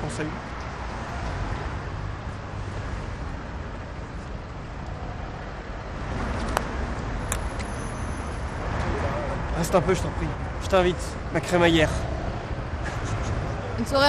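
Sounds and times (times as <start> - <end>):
road traffic rumble: 0.0 - 14.0.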